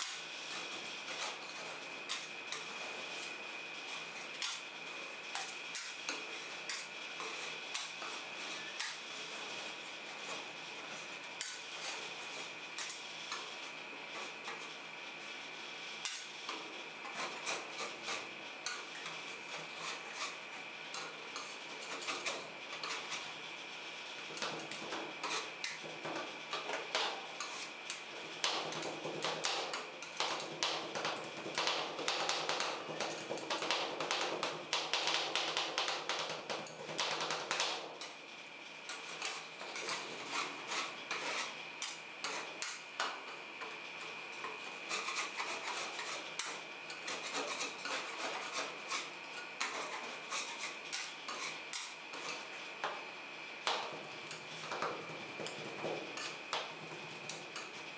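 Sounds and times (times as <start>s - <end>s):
spatulas scraping cold plate: 38.9s - 42.8s, 44.6s - 52.6s.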